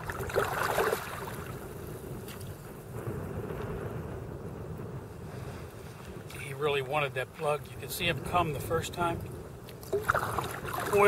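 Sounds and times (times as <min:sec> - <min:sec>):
paddle splash: 0:00.0 - 0:02.6, 0:09.8 - 0:11.0
water lapping at a kayak: 0:00.0 - 0:02.8, 0:09.7 - 0:11.0
wind buffeting microphone: 0:00.0 - 0:11.0.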